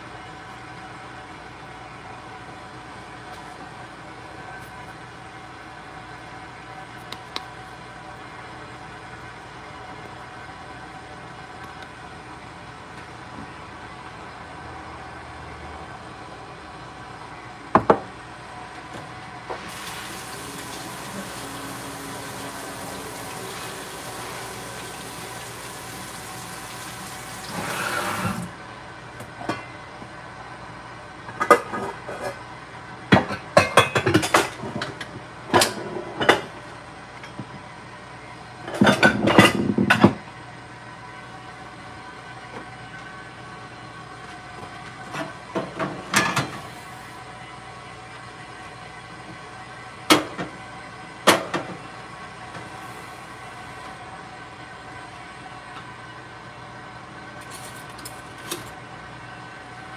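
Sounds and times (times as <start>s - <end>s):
kitchen tap running: 19.6s - 28.5s.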